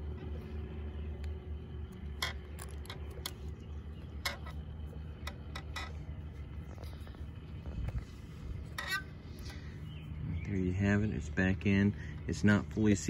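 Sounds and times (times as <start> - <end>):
steady low rumble: 0.0 - 13.0
metal retaining ring clicking: 1.2 - 6.2, 8.7 - 9.6.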